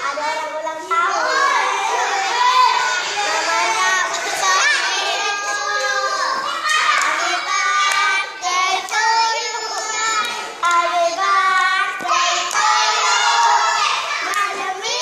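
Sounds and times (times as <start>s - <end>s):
girls singing a chant: 0.0s - 15.0s
hands clapping: 5.5s - 8.1s, 8.8s - 9.1s, 9.7s - 10.9s, 11.9s - 12.8s, 14.2s - 14.6s.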